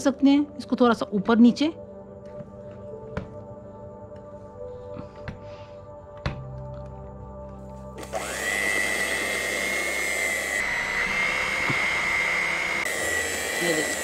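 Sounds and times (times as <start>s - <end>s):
electric hand mixer whining: 8.0s - 14.0s.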